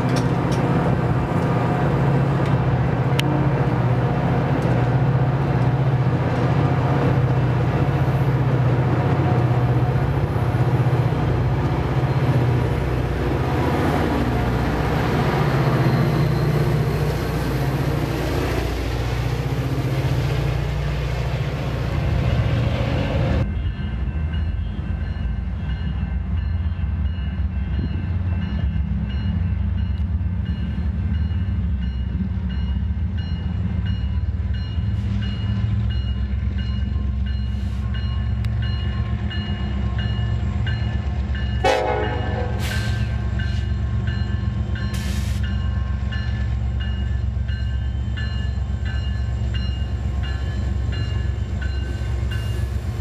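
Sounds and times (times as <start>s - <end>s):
dull rumble of approaching train: 0.0s - 53.0s
train wheels rumbling on rails: 0.0s - 53.0s.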